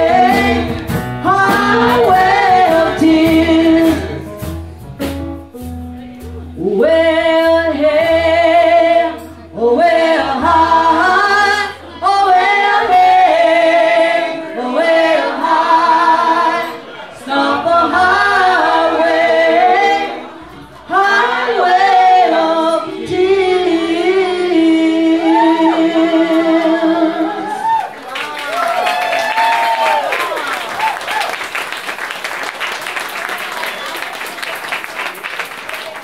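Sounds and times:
women singing: 0.0s - 4.3s, 6.6s - 27.8s.

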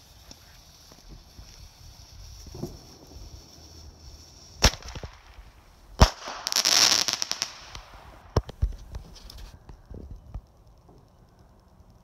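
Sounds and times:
firework bangs: 0.0s - 8.8s
hissing crackle: 0.0s - 12.0s
small firework pops: 0.1s - 12.0s.

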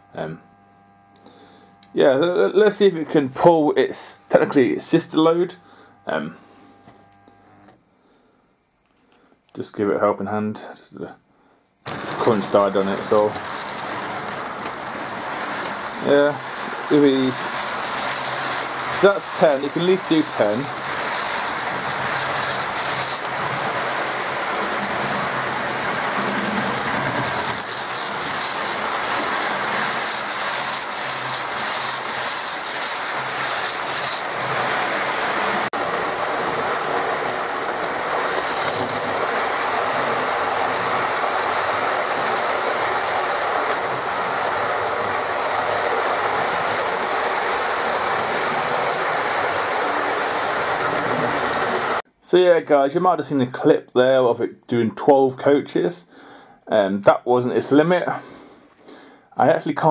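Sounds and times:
model train running: 11.9s - 52.0s.

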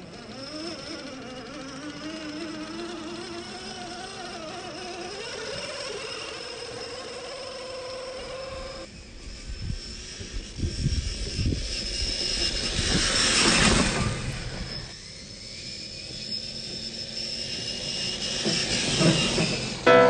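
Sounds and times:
toy car brushing through grass: 0.0s - 16.0s.

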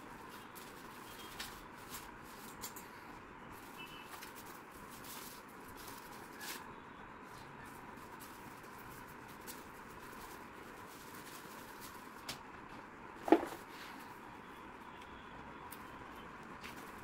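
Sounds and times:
packaging clicks and rustles: 0.1s - 3.0s.

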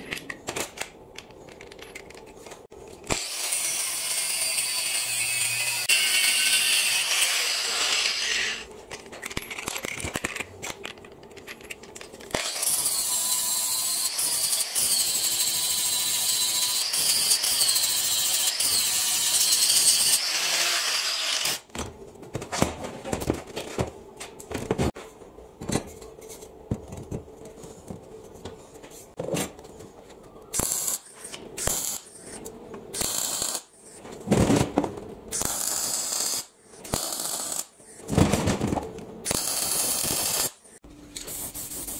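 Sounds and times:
angle grinder whining on metal: 3.1s - 8.6s.

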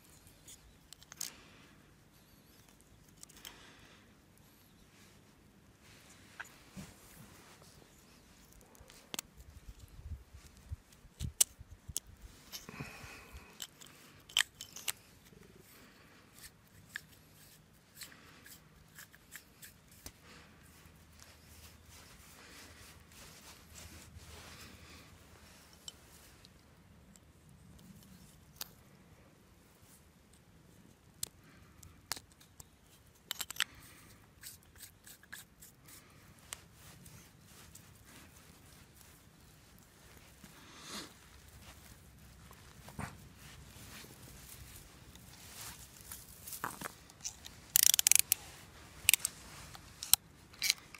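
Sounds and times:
rasp of plastic threads: 15.6s - 24.1s, 45.6s - 50.9s
plastic clicks and snaps: 47.2s - 48.4s.

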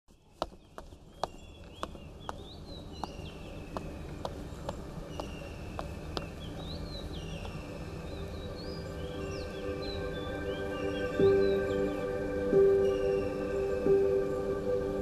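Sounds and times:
footsteps on stone paving: 0.1s - 7.7s
birds chirping: 0.1s - 15.0s
low ambient drone: 1.5s - 15.0s.

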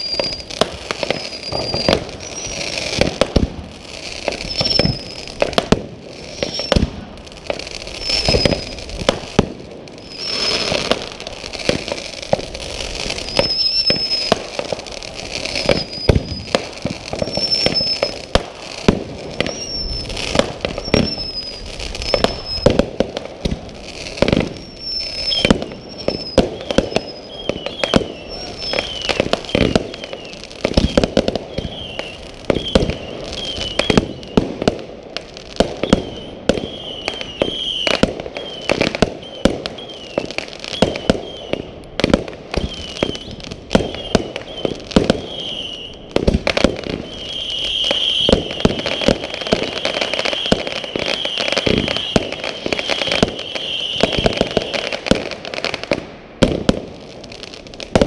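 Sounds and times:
steady high whistle: 0.0s - 2.8s, 4.4s - 5.3s, 6.2s - 6.8s, 8.0s - 8.9s, 10.0s - 10.9s, 13.1s - 14.4s, 15.6s - 16.6s, 17.2s - 18.2s, 19.4s - 22.8s, 24.5s - 34.5s, 35.8s - 41.7s, 42.6s - 46.0s, 47.0s - 55.0s
fireworks bangs and pops: 0.0s - 58.0s
short high whistles: 1.3s - 2.7s, 4.4s - 5.3s, 6.3s - 6.8s, 8.0s - 8.8s, 10.1s - 10.8s, 13.2s - 14.3s, 17.2s - 18.1s, 19.4s - 20.2s, 20.8s - 22.7s, 24.6s - 29.3s.

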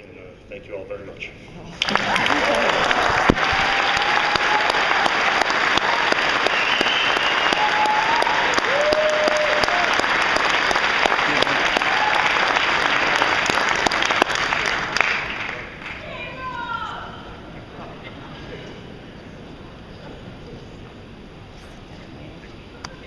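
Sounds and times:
audience applauding: 1.7s - 16.2s
short cheers: 2.3s - 10.1s, 11.3s - 12.6s.

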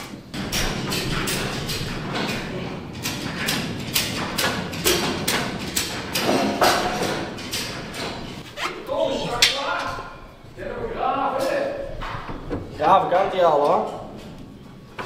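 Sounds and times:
sharp knocks: 0.3s - 8.4s.

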